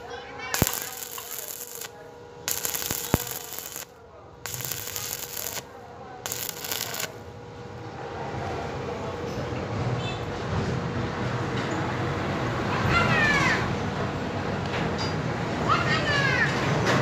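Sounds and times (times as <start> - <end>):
welding arc crackling: 0.0 - 7.2
faint hum: 0.0 - 10.4.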